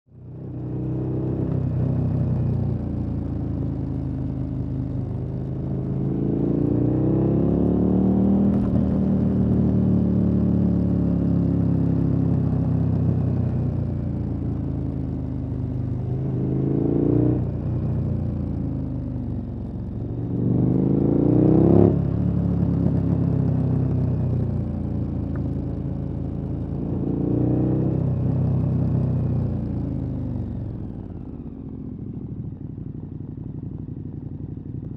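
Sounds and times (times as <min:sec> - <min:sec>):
motorcycle engine revving: 0:05.6 - 0:13.2, 0:15.3 - 0:25.3.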